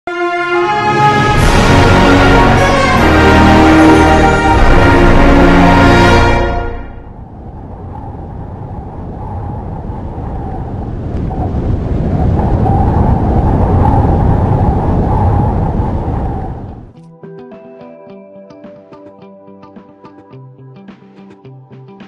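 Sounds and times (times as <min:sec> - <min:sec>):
deep rushing rumble: 0:00.8 - 0:17.0.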